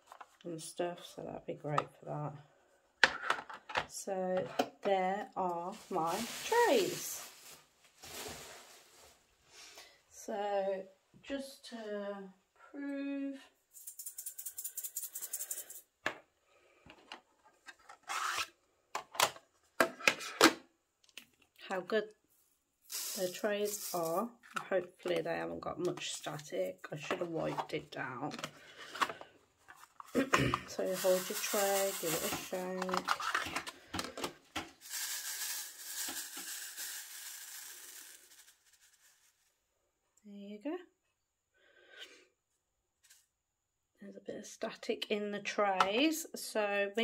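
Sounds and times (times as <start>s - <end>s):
plastic beads rattling in a tray: 13.8s - 15.8s, 22.9s - 24.5s, 30.7s - 33.6s, 34.7s - 39.4s.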